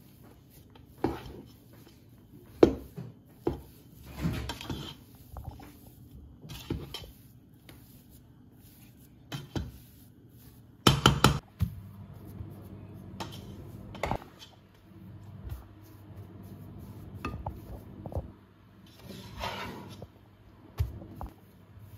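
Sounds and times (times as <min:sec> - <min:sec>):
utensil scraping metal pot: 0:03.4 - 0:05.8, 0:06.4 - 0:07.4, 0:18.8 - 0:20.0.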